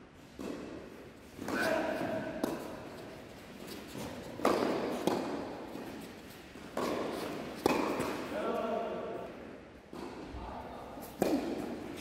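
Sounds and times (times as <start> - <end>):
tennis ball struck by rackets: 0.4 - 0.8, 1.4 - 8.3, 11.0 - 12.0
ball bouncing on court: 1.4 - 3.1, 3.7 - 6.0, 6.6 - 8.3, 11.2 - 11.8.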